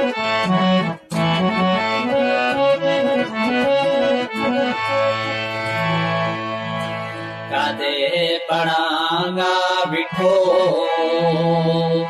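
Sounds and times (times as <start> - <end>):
accordion-like folk melody: 0.0 - 12.0
low bass notes: 0.2 - 7.5.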